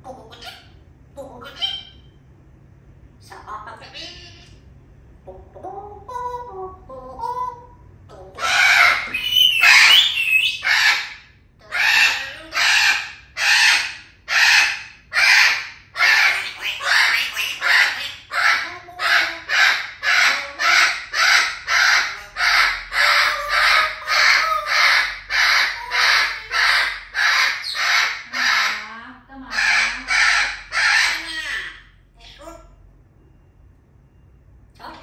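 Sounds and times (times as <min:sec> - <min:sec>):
parrot squawking: 0:00.0 - 0:02.2, 0:03.3 - 0:04.5, 0:06.0 - 0:32.8
parrot rising whistle: 0:08.9 - 0:11.0.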